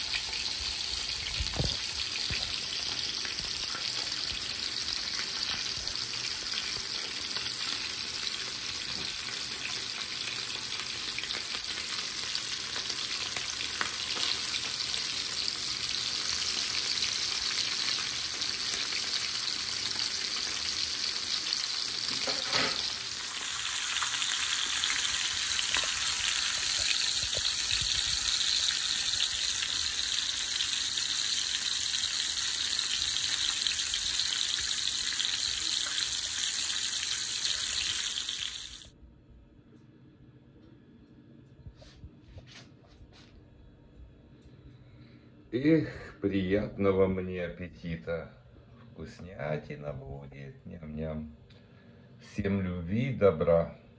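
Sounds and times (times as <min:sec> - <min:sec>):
fish frying in hot oil: 0:00.0 - 0:38.9.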